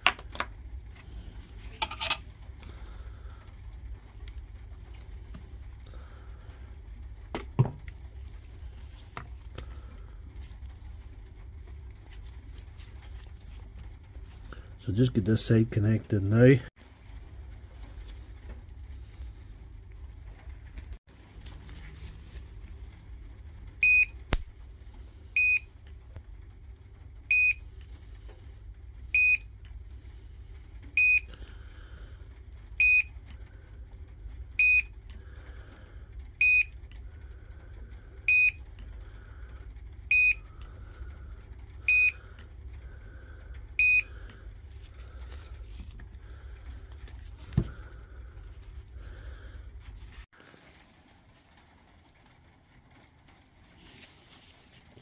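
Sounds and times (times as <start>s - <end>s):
low hum: 0.0s - 55.0s
spot welder beeps: 23.8s - 24.2s, 25.4s - 25.7s, 27.3s - 27.6s, 29.2s - 29.4s, 31.0s - 31.3s, 32.8s - 33.1s, 34.6s - 34.9s, 36.4s - 36.7s, 38.3s - 38.6s, 40.1s - 40.4s, 41.9s - 42.2s, 43.8s - 44.1s.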